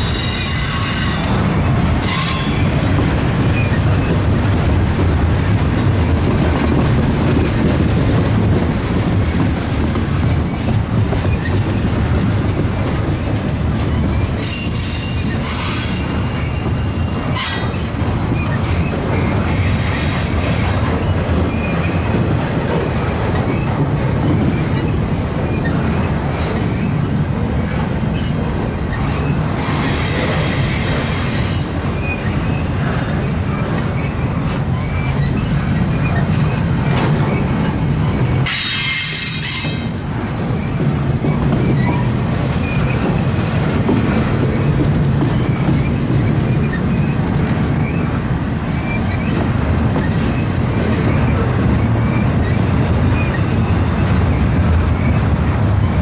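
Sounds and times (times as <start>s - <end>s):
high wheel squeal: 0.0s - 2.9s, 14.1s - 18.6s, 37.3s - 39.9s
train wheels rumbling on rails: 0.0s - 56.0s.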